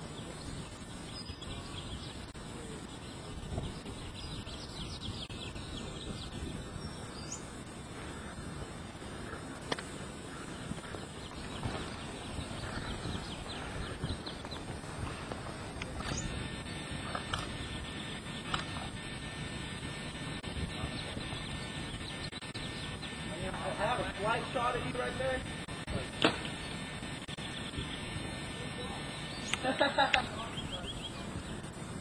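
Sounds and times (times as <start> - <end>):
forest ambience: 0.0 - 32.0
sharp click: 26.2 - 26.6.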